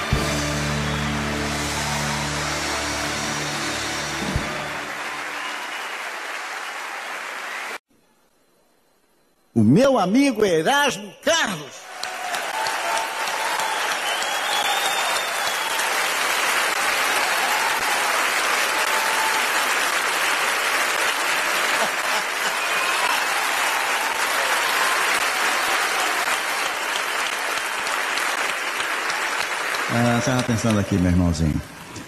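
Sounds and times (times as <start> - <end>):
crowd applauding: 0.0 - 7.8, 11.8 - 31.7
crowd shouts and whistles: 0.0 - 7.8, 10.8 - 16.2, 22.4 - 26.7.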